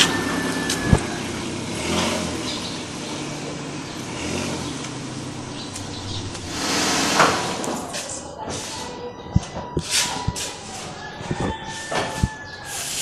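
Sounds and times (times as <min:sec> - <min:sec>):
car engine low rumble: 0:00.0 - 0:08.1.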